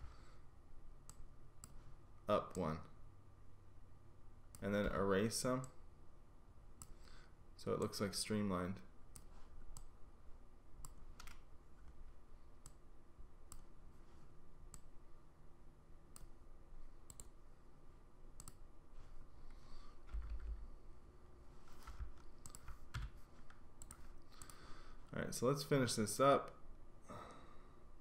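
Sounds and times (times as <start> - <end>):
faint computer mouse clicks: 17.0 - 17.4, 18.4 - 18.6, 22.4 - 22.8, 23.5 - 24.6.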